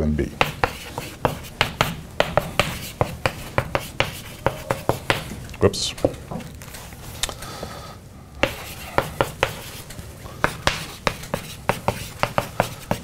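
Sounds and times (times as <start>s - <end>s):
chalk writing on blackboard: 0.4s - 5.4s, 8.4s - 13.0s.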